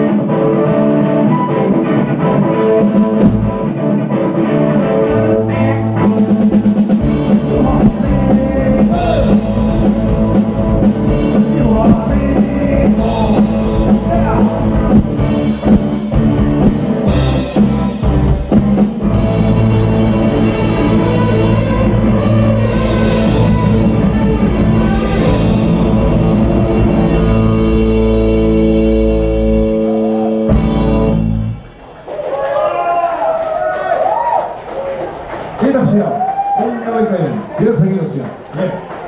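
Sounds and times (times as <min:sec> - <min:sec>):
drum kit: 0:00.0 - 0:31.8
keyboard playing: 0:00.0 - 0:31.8
electric guitar: 0:00.0 - 0:32.0
person singing: 0:07.2 - 0:10.4, 0:11.1 - 0:15.8.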